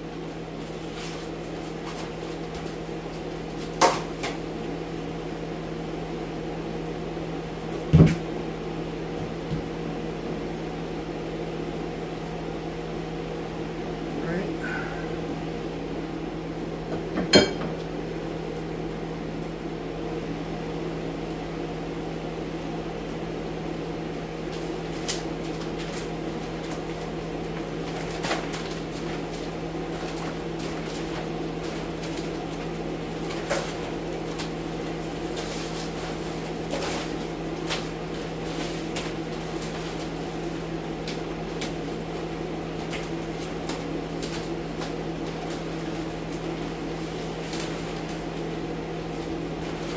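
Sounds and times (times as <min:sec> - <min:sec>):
plastic sheeting rustling and snapping: 0:00.2 - 0:04.6, 0:24.4 - 0:49.9.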